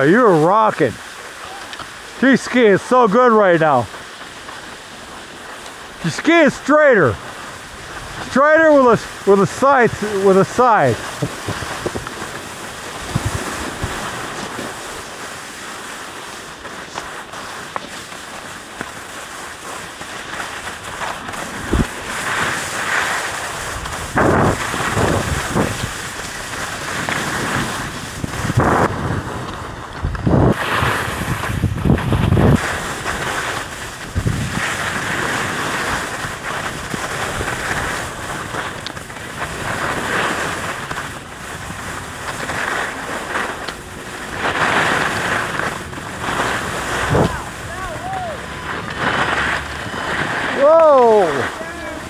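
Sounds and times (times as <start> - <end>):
skis scraping over snow: 0.0 - 52.0
wind buffeting microphone: 11.1 - 14.3, 21.5 - 22.6, 23.6 - 38.5, 45.2 - 52.0.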